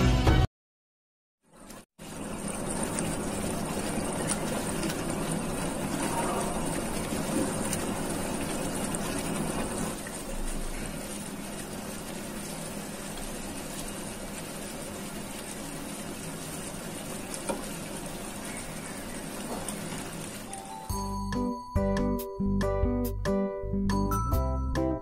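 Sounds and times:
curry simmering in a pan: 1.5s - 20.7s.

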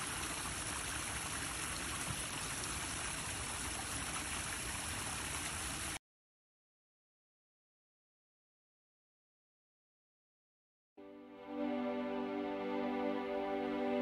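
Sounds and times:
waterfall splashing over rocks: 0.0s - 6.0s.

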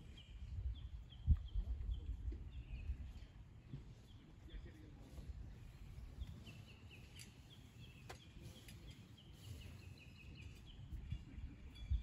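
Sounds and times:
wind rumble on microphone: 0.0s - 12.0s
faint bird chirps: 5.6s - 12.0s.

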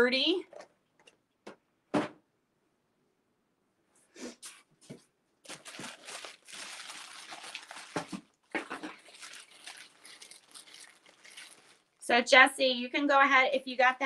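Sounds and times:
packaging rustling and crinkling: 5.4s - 12.0s.

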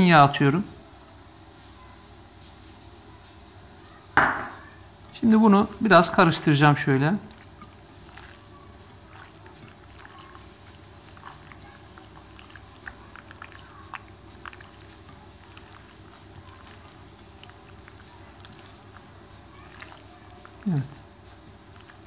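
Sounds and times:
hands mixing raw meat: 4.9s - 22.0s.

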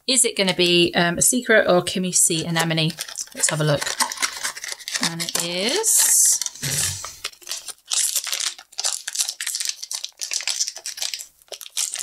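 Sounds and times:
plastic bag crinkling and tearing: 2.5s - 12.0s.

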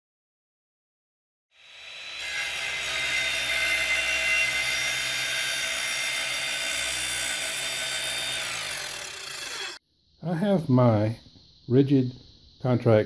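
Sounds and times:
power tool whining: 1.6s - 9.8s.

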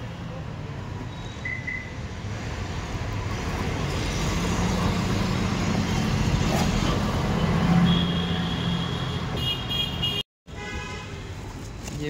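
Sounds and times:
motor vehicle rumble: 2.0s - 9.5s.

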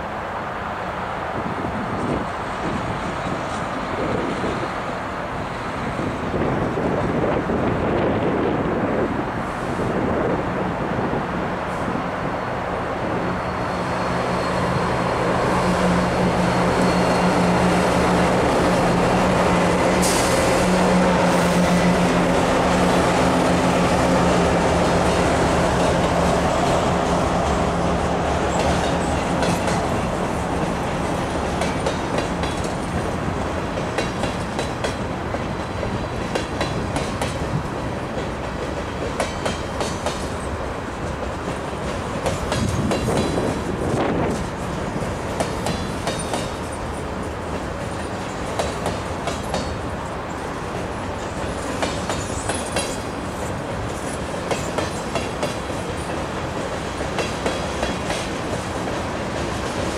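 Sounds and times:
diesel locomotive engines droning: 0.0s - 59.9s
train wheels clickety-clack: 13.8s - 59.9s.

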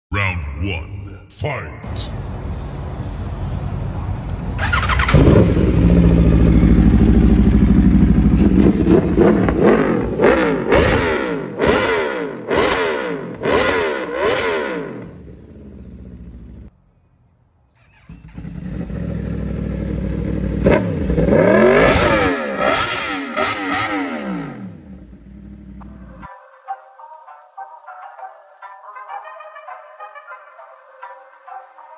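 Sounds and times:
motorcycle engine idling: 4.6s - 10.3s, 15.0s - 16.7s, 17.8s - 21.4s, 24.4s - 26.3s
motorcycle engine revving: 4.6s - 16.7s, 17.8s - 26.3s.

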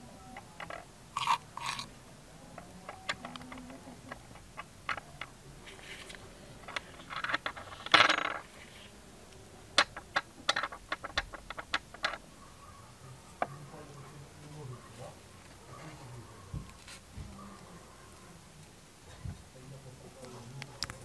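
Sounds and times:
scraping rustle: 2.6s - 9.0s.

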